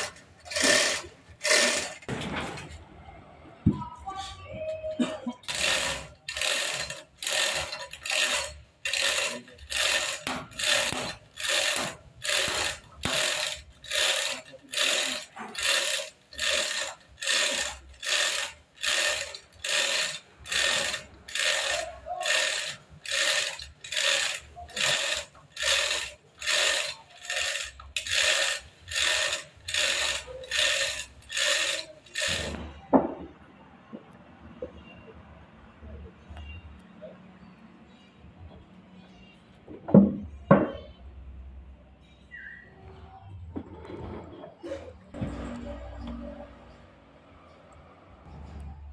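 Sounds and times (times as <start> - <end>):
chain rattling through hoist block: 0.0 - 2.2, 5.5 - 32.6.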